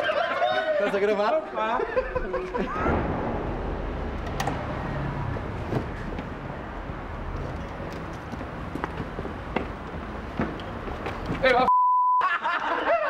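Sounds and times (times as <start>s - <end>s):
vehicle rumble of street noise: 2.2s - 11.7s.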